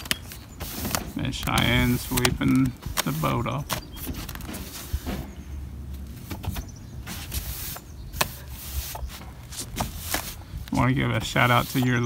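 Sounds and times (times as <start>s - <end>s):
broom bristles sweeping deck: 0.5s - 5.5s, 6.1s - 12.0s.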